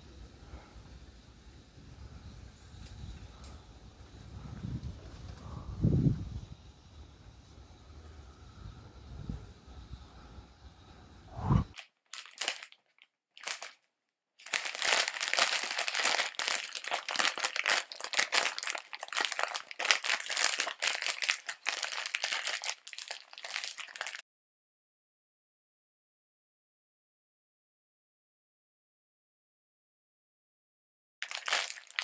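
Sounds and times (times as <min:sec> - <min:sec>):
outdoor rumble: 0:00.0 - 0:11.7
material crumpling and crinkling: 0:11.7 - 0:24.2, 0:31.2 - 0:32.0.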